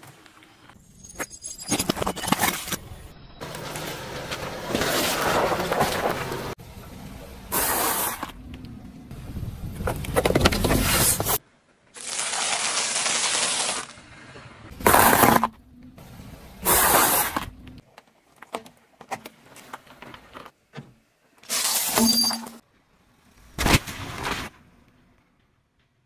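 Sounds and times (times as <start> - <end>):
tyre crunching and popping objects: 14.8 - 15.6.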